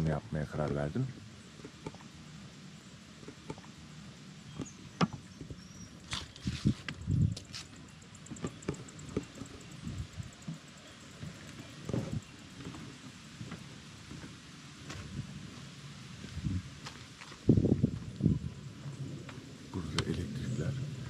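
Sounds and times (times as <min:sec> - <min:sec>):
footsteps on wooden boards: 0:11.2 - 0:18.1.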